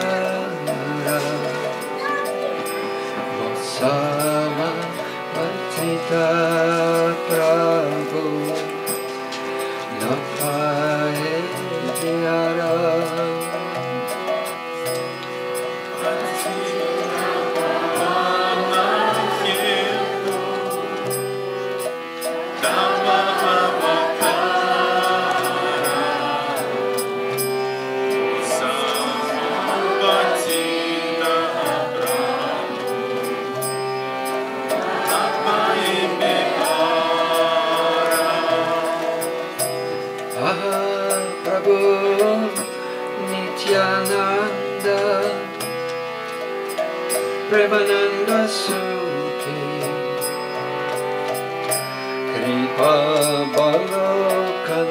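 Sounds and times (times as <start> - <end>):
people singing devotional song: 0.0 - 2.0, 15.8 - 46.3, 47.1 - 54.9
harmonium chords: 0.0 - 54.9.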